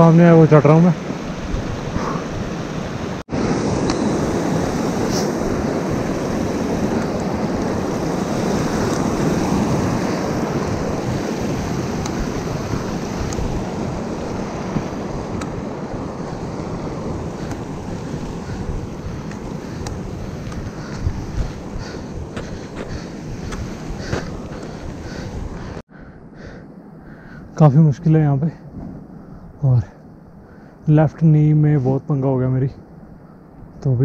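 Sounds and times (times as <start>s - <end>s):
wind blowing across microphone: 0.0s - 25.8s.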